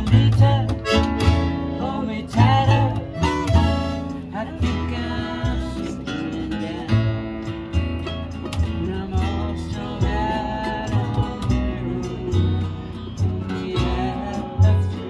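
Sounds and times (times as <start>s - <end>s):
strummed acoustic guitars: 0.0s - 15.0s
upright bass plucking: 0.0s - 15.0s.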